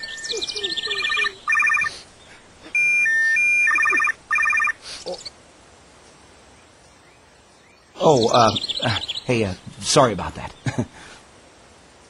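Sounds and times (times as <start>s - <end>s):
phone ringtone pulsing tones: 0.0s - 1.9s, 2.8s - 4.8s.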